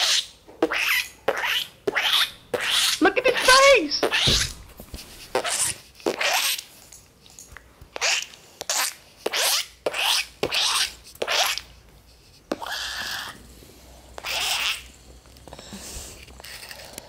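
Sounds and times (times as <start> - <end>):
person making scratchy hisses: 1.5 - 6.6, 12.4 - 14.9.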